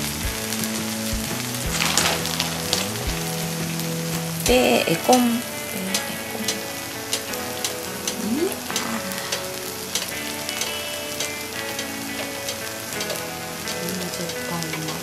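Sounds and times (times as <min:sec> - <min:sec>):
food sizzling with crackles: 0:00.0 - 0:15.0.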